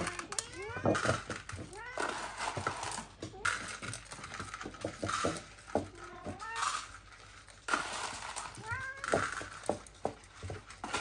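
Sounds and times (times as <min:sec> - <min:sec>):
cat meowing: 0:00.0 - 0:01.0, 0:01.6 - 0:02.4, 0:08.6 - 0:09.3
dry cat food rattling: 0:00.0 - 0:11.0.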